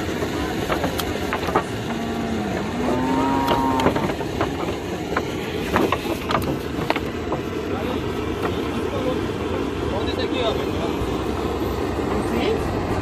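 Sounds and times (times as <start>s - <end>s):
hooves knocking on wooden boards: 0.0s - 7.6s
calf mooing: 1.9s - 4.1s.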